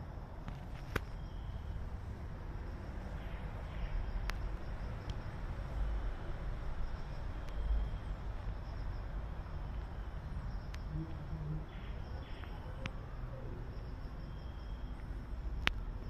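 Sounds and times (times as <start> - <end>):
steady low rumble: 0.0 - 16.0
faint ticks: 4.2 - 5.3, 9.7 - 13.0, 14.9 - 16.0.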